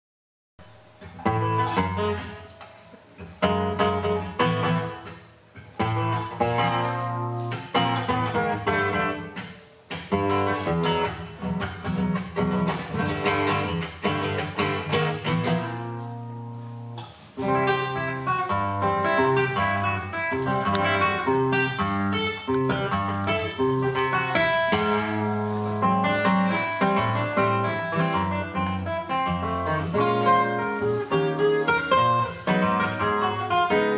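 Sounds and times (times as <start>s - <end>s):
classical guitar strumming: 0.6s - 33.9s.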